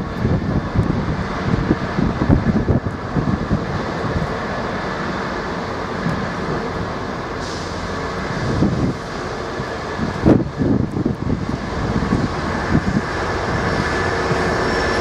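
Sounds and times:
diesel locomotive engine running: 0.0s - 15.0s
brief hiss: 7.4s - 8.0s.

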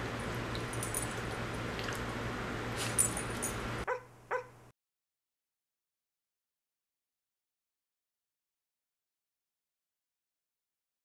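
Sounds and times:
low room hum: 0.0s - 4.7s
dog yips: 3.9s - 4.6s.

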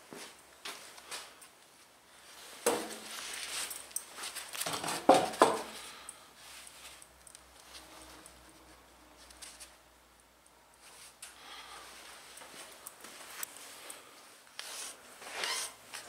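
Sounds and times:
wooden boards knocking: 4.8s - 5.7s.

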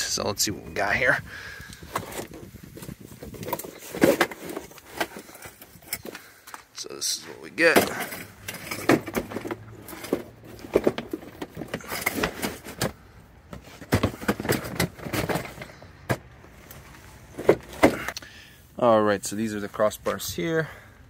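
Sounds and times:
cardboard packaging rustling: 1.8s - 6.1s, 8.1s - 18.0s.

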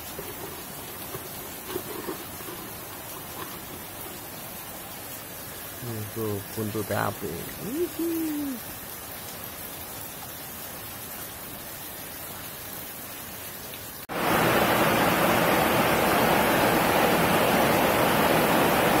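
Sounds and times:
loud steady hiss: 0.0s - 9.9s, 14.1s - 19.0s.

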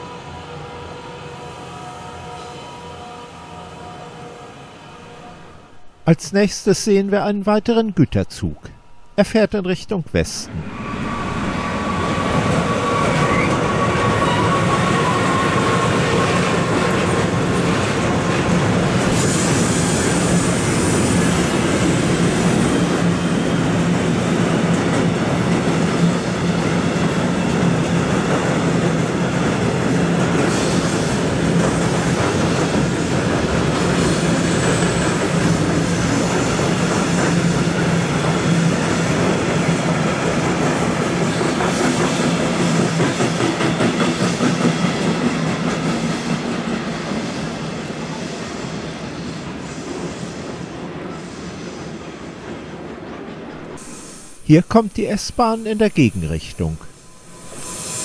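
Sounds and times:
locomotive whine: 0.0s - 6.0s, 10.5s - 17.9s, 56.8s - 58.0s
train wheels rumbling on rail: 10.7s - 54.1s.

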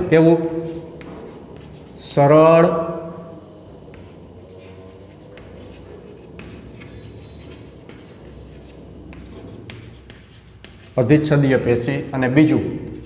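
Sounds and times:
chalk tapping on chalkboard: 0.4s - 2.2s, 3.9s - 11.3s
chalk scratching on chalkboard: 0.4s - 2.4s, 3.8s - 11.7s, 12.8s - 13.0s.

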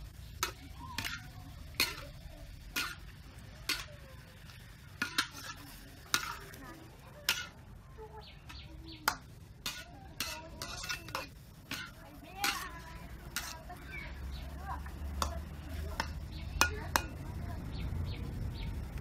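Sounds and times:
steady low hum: 0.0s - 19.0s
metal ladle scraping in wok: 0.2s - 7.6s, 9.1s - 13.8s
ladle clinking against pan: 9.1s - 12.7s.

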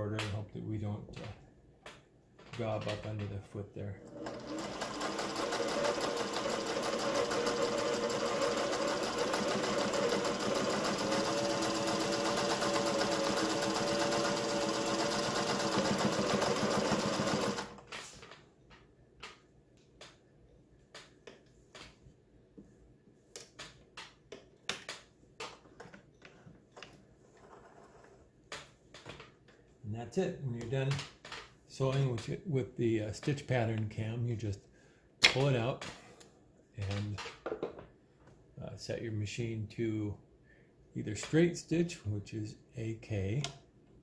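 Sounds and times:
sewing machine running: 4.0s - 17.8s.

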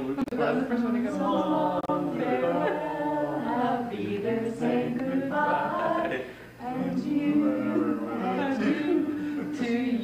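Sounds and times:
group singing unaccompanied: 0.1s - 10.0s.

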